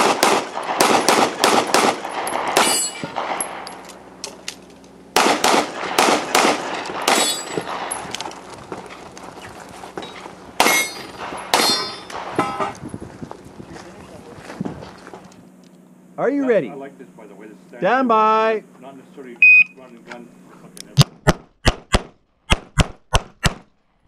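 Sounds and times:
pistol shots: 0.0 - 3.6, 5.2 - 8.1, 10.6 - 12.4
sharp metallic clangs: 2.2 - 3.9, 7.0 - 8.1, 10.0 - 12.8.

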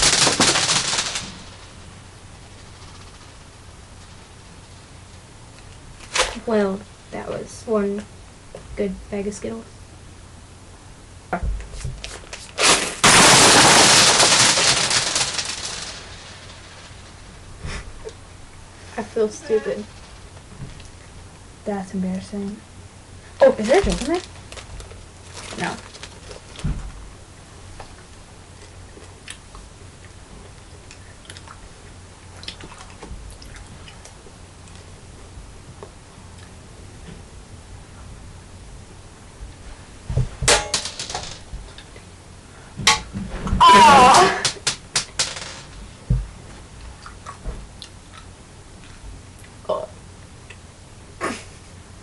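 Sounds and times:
steady low hum: 0.0 - 52.0
candy crunching: 12.1 - 16.6
candy wrapper crumpling: 23.6 - 26.6.

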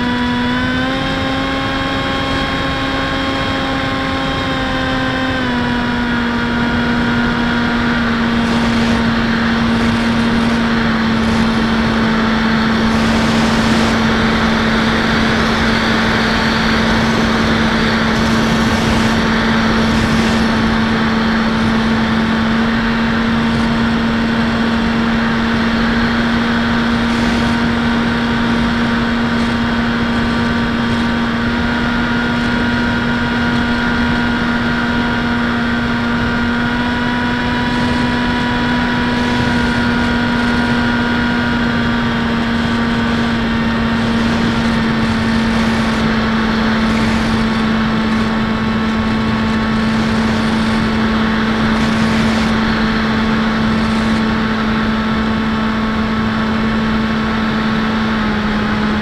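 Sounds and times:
propeller motor drone: 0.0 - 59.0
wind noise on microphone: 0.0 - 59.0.

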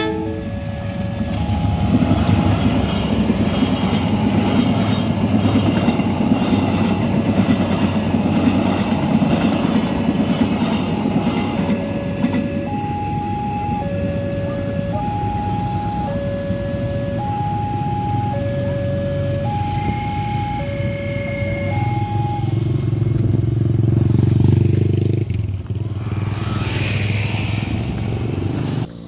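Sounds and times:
crossing alarm two-note chime: 0.0 - 2.4, 11.7 - 22.7
motorcycle engines passing: 17.7 - 29.0.

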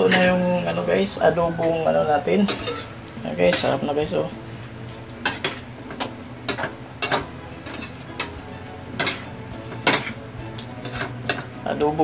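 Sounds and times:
metal spatula scraping a wok: 0.0 - 0.8, 2.4 - 3.8, 5.2 - 5.7, 6.5 - 11.5
faint frying sizzle: 0.0 - 12.0.

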